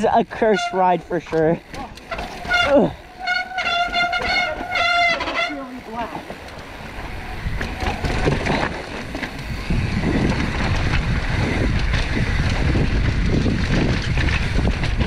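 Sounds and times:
bike tyres rumbling and clattering: 0.0 - 15.0
wind buffeting microphone: 6.1 - 15.0.

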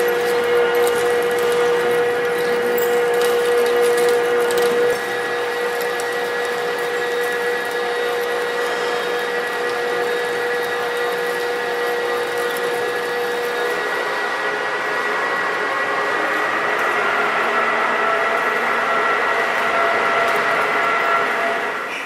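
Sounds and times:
metal lathe humming and whining: 0.0 - 22.0.

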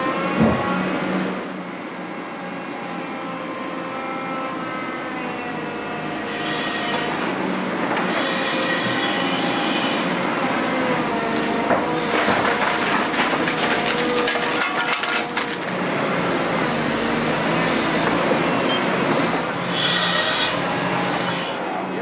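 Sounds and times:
excavator engine hum: 0.0 - 22.0
high drawn-out squealing: 19.6 - 21.6.

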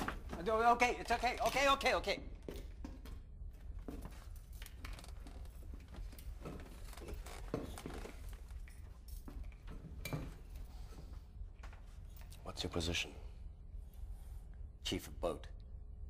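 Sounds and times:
rustling and shuffling: 2.6 - 12.3.

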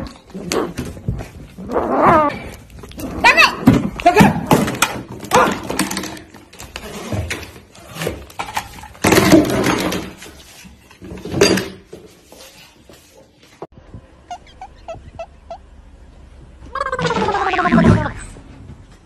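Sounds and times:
broom and dustpan clattering on tiles: 2.5 - 13.7.

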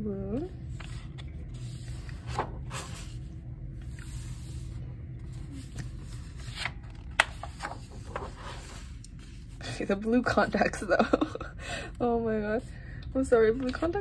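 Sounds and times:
paper rustling and sliding: 0.7 - 9.8.

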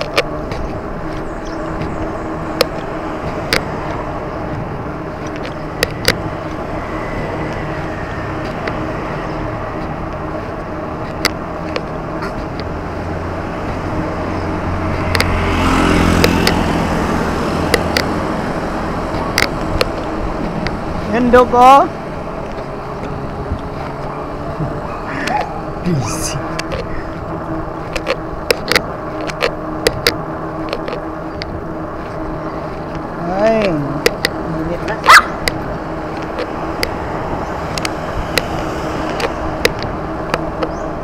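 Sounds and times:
sharp clicks and knocks: 0.0 - 6.6, 8.4 - 12.8, 14.8 - 15.5, 16.1 - 16.8, 17.5 - 18.3, 18.9 - 21.4, 26.5 - 32.1, 32.8 - 34.4, 35.4 - 37.0, 37.6 - 40.9
road traffic noise: 0.0 - 41.0
vehicle engine passing: 0.0 - 41.0.

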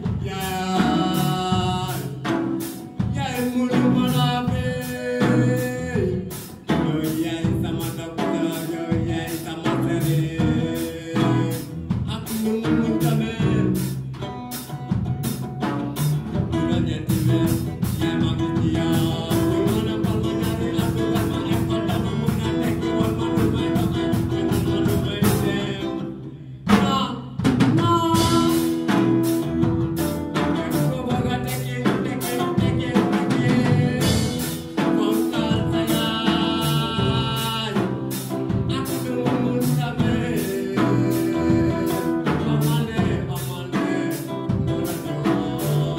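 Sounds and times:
person singing: 0.0 - 14.8, 16.0 - 45.9
electric guitar: 0.0 - 27.0, 27.6 - 45.9
drum kit: 0.0 - 45.9.

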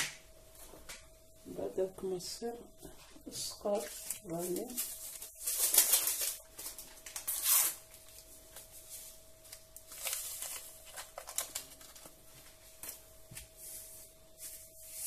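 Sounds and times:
paper sachet rustling and tearing: 3.7 - 8.3, 9.5 - 13.0
paper crinkles: 3.7 - 13.0.

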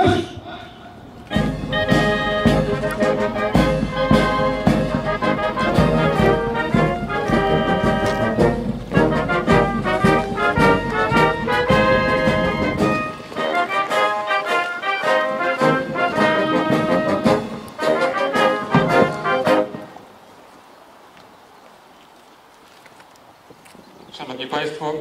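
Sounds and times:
steady drum beat: 1.3 - 19.8
brass band playing a march: 1.3 - 20.0.

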